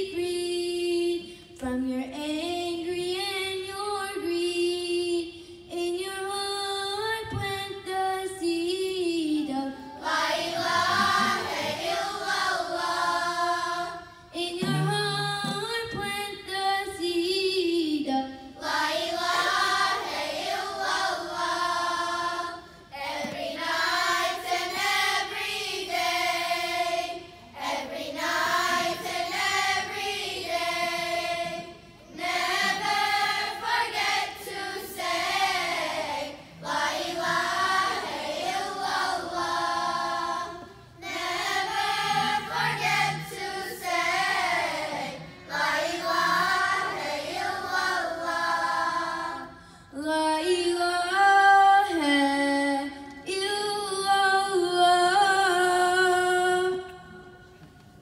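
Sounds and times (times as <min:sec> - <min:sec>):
girls' choir singing: 0:09.4 - 0:16.1, 0:18.6 - 0:49.6.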